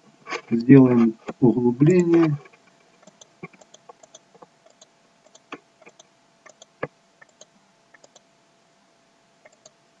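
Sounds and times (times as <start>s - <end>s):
faint steady hum: 0.0s - 10.0s
mouse and keyboard clicks: 1.3s - 8.2s, 9.4s - 9.8s.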